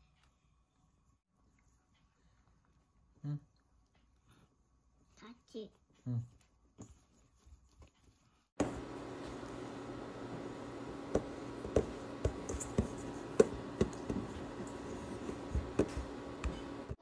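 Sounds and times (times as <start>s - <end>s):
steady hum: 8.6s - 17.0s.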